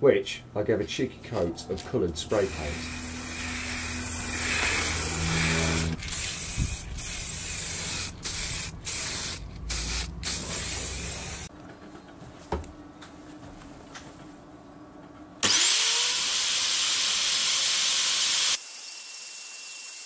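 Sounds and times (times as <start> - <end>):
spray paint can hissing: 2.3 - 11.5.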